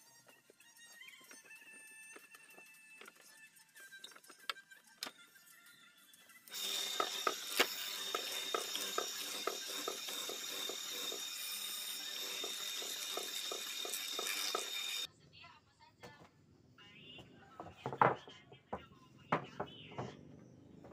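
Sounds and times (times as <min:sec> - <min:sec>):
drill press motor whine: 0:06.5 - 0:15.1.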